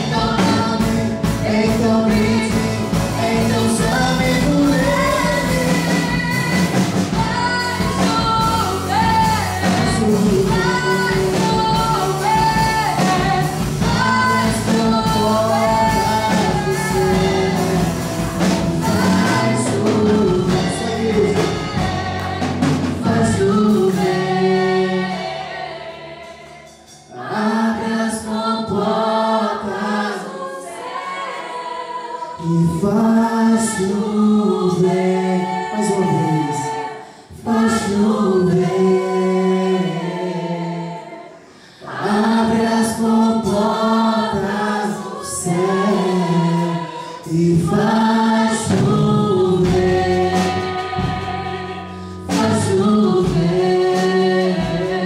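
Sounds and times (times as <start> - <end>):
man singing: 0.0 - 6.8, 7.6 - 18.1, 18.8 - 25.0, 32.4 - 36.8, 45.3 - 51.0, 52.2 - 55.0
woman singing: 0.0 - 18.1, 18.8 - 25.0, 41.9 - 55.0
electric bass: 0.0 - 27.5, 45.3 - 55.0
acoustic guitar: 0.0 - 28.9, 41.0 - 55.0
drums: 0.0 - 55.0.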